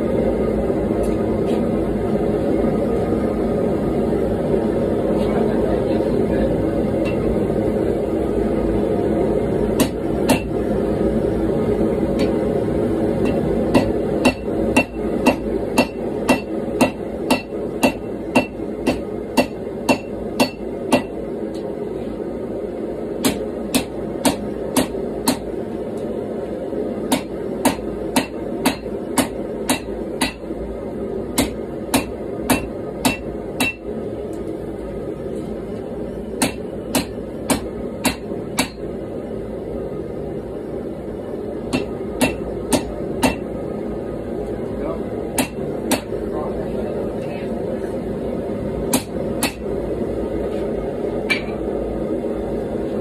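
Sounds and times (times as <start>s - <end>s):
gas forge burner rushing: 0.0s - 53.0s
hammer striking metal on anvil: 7.0s - 7.3s, 9.8s - 10.6s, 12.2s - 12.4s, 13.2s - 21.2s, 23.2s - 25.5s, 27.1s - 30.5s, 31.4s - 33.9s, 36.4s - 38.8s, 41.7s - 43.5s, 45.4s - 46.2s, 48.9s - 49.7s, 51.3s - 51.6s.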